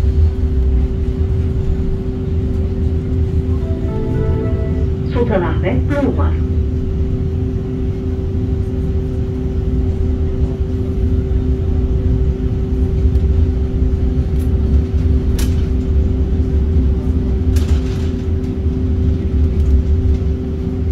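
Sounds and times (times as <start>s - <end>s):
tram rumble: 0.0s - 20.9s
electric hum: 3.0s - 7.5s.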